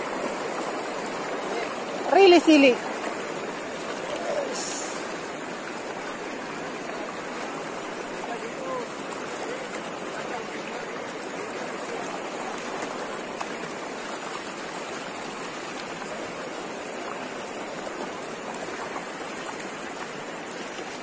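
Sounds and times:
river rushing over rocks: 0.0 - 21.0.

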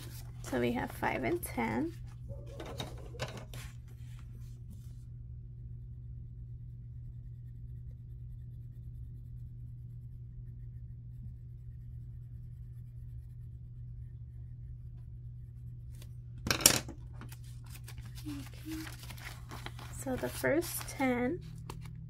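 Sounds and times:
colored pencil scratching on paper: 0.0 - 5.0, 6.6 - 16.1
low electrical hum: 0.0 - 22.0.

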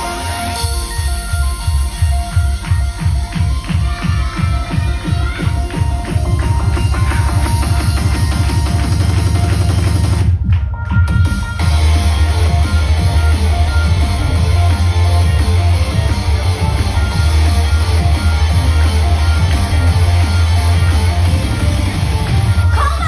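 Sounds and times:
live instrumental rock music: 11.0 - 23.0.

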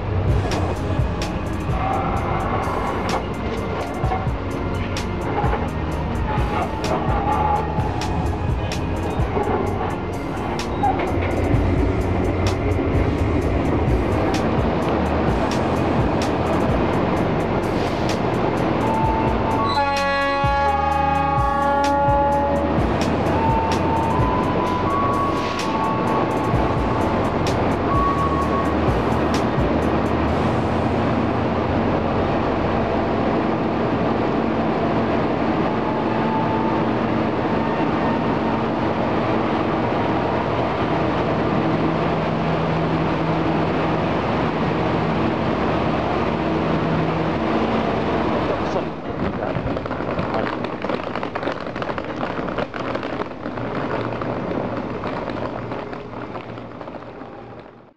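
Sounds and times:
train rumbling hum: 0.0 - 57.9
crackling and rustling: 48.4 - 57.9.

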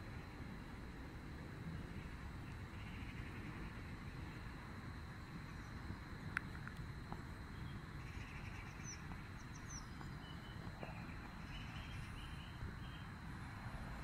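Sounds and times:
low outdoor rumble: 0.0 - 14.0
bird chirps: 7.5 - 13.2.

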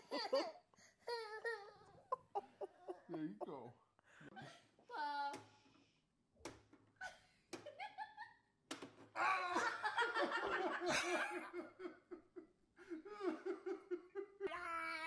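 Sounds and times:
people laughing loudly: 2.0 - 3.6, 9.2 - 14.5.

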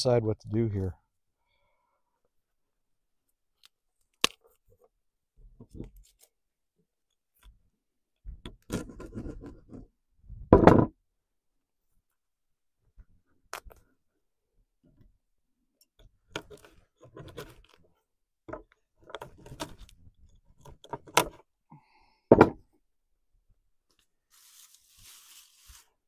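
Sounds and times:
hatchet striking wooden table: 10.6 - 10.9, 22.3 - 22.6.

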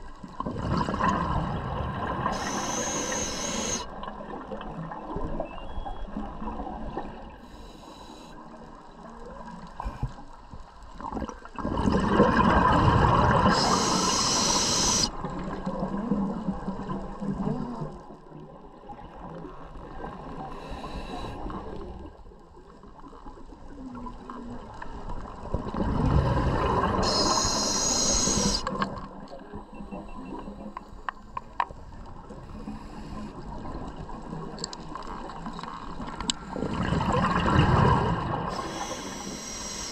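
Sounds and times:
exhaled bubbles rushing: 0.4 - 5.3, 11.1 - 14.5, 25.5 - 27.7, 36.5 - 39.2
underwater background hiss: 1.8 - 4.1, 7.3 - 9.0, 12.6 - 15.6, 20.2 - 22.0, 26.1 - 34.4, 35.3 - 39.9
diver breathing through regulator: 2.2 - 3.9, 13.4 - 15.1, 20.5 - 21.6, 26.1 - 28.8, 38.4 - 39.9.

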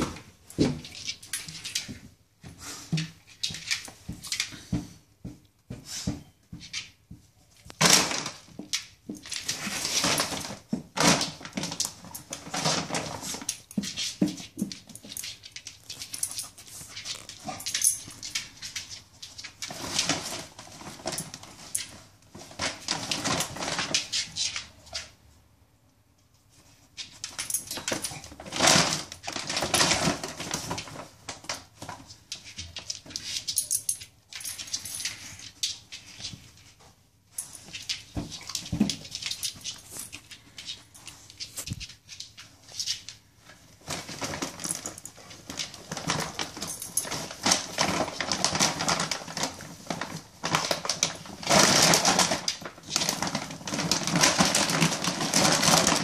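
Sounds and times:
plastic bag crinkling: 37.4 - 56.0.

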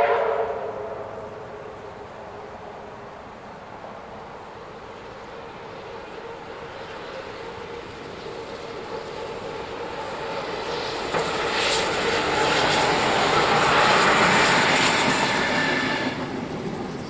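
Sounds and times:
train passing: 0.0 - 17.0.

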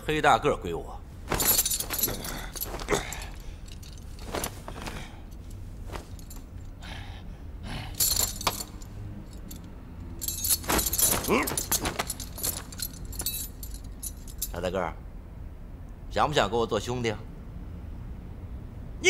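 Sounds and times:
metal jangling and rattling: 1.2 - 6.8, 7.9 - 14.7.

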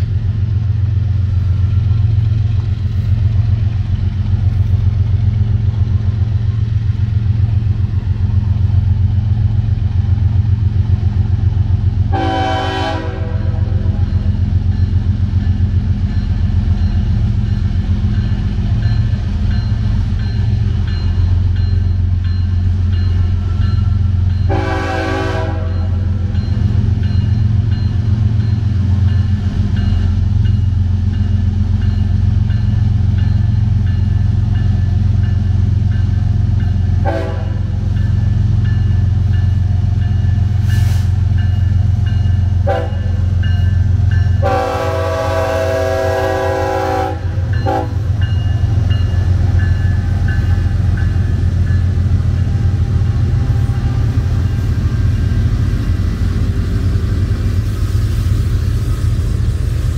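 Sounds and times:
diesel locomotive rumbling: 0.0 - 59.9
train horn blasts: 12.1 - 14.1, 24.4 - 26.2, 37.0 - 37.8, 42.6 - 43.3, 44.4 - 48.1
crossing bell ringing: 13.4 - 40.6, 41.3 - 45.1, 45.9 - 57.6.

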